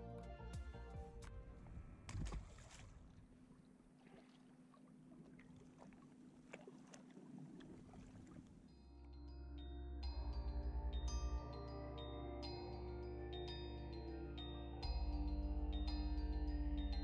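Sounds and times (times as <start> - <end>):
music: 0.0 - 2.1, 8.8 - 17.0
water around kayak: 1.2 - 17.0
small water drips: 2.1 - 8.7.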